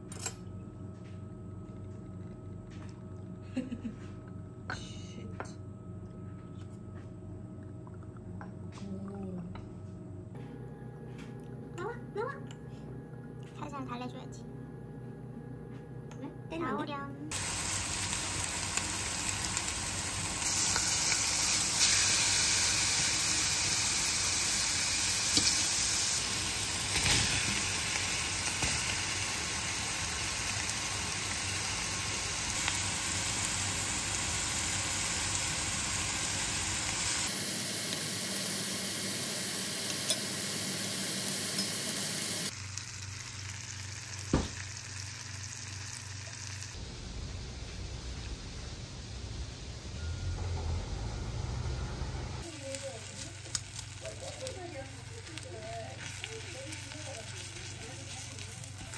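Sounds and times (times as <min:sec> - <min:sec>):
meat sizzling in hot fat: 0:17.3 - 0:46.8, 0:52.4 - 0:58.9.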